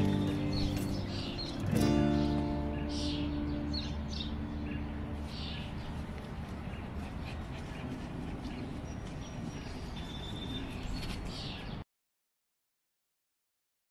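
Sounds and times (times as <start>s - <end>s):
bird chirps: 0.0s - 11.8s.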